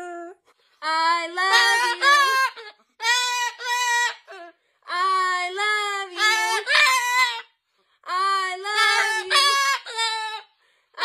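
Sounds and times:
woman singing without words: 0.8s - 2.4s, 4.9s - 6.8s, 8.0s - 9.6s
cockatoo singing: 1.2s - 5.0s, 5.7s - 7.6s, 8.5s - 10.5s.

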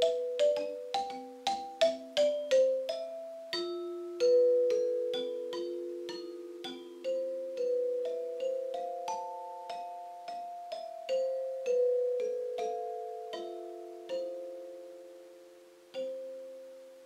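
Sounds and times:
metallophone slow melody: 0.0s - 17.0s.

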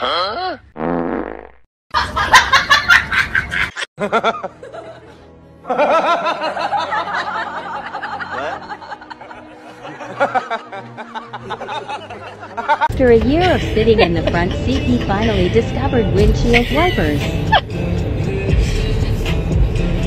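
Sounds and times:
snickering laughter: 2.0s - 5.1s, 5.7s - 12.9s
music with chirpy melody: 4.0s - 20.0s.

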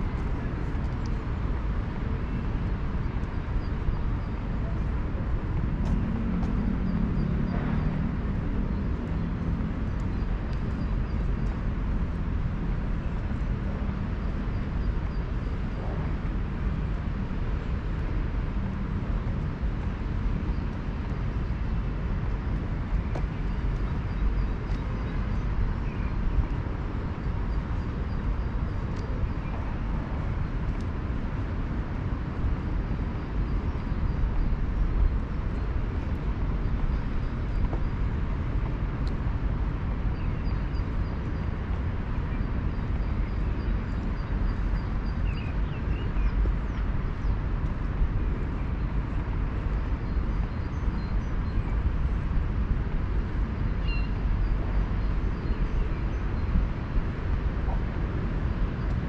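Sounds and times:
city traffic rumble: 0.0s - 59.0s.

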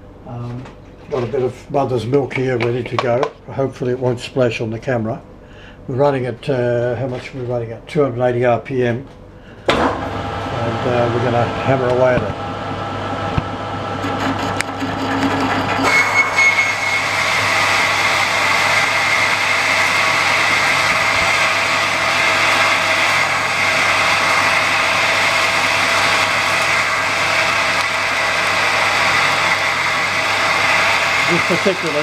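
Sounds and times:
metal lathe running: 9.8s - 32.0s
drill cutting steel with high ring: 14.0s - 32.0s.

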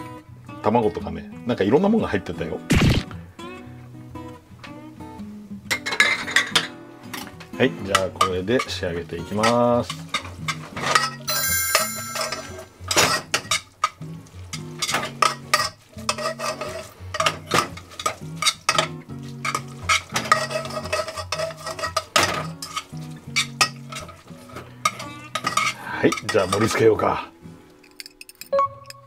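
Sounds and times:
tongs clicking and scraping a pan: 5.7s - 26.9s.

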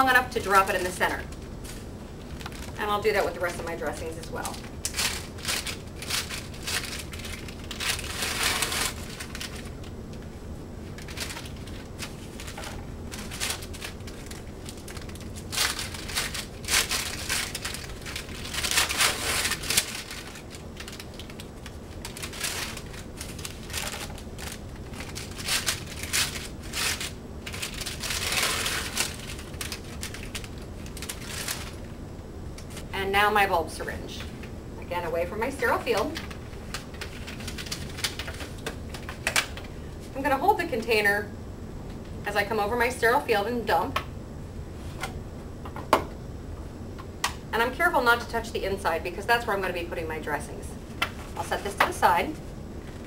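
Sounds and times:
paper wrappers peeled and crinkled: 0.6s - 32.0s, 36.0s - 39.8s.

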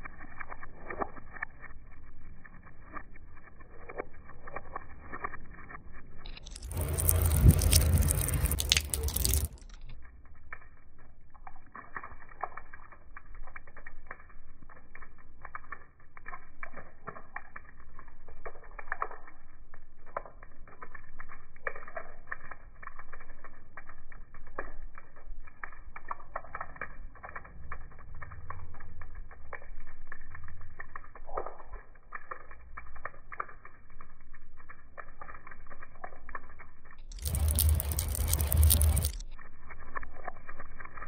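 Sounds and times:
water dripping on concrete: 0.0s - 41.0s
loud water splash: 6.5s - 9.6s.

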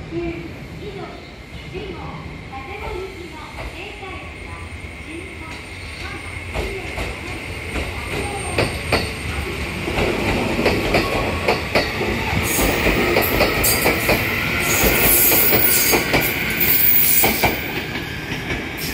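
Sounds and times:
train wheels clicking over rail joints: 5.5s - 18.9s.

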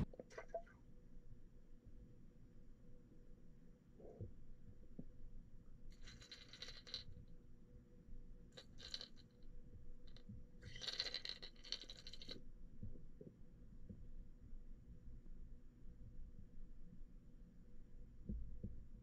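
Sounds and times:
fast rattling clicks underwater: 10.1s - 12.4s.

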